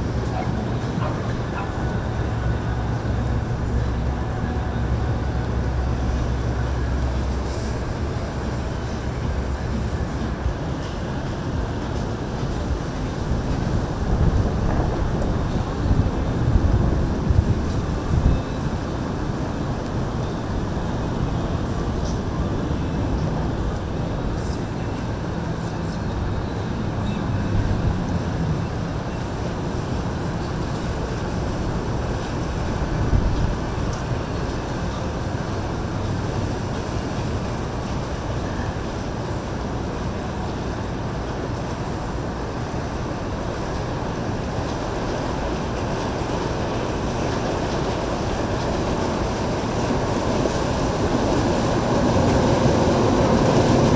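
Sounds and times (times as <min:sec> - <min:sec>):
wind on microphone: 0:00.0 - 0:25.4, 0:27.2 - 0:38.3
boat engine hum: 0:00.0 - 0:53.9
rushing water: 0:00.0 - 0:53.9.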